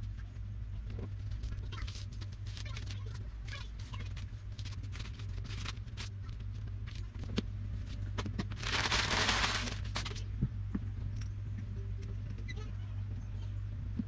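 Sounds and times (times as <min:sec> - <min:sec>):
steady low hum: 0:00.0 - 0:14.0
newspaper crumpling: 0:04.6 - 0:06.1, 0:08.6 - 0:10.2.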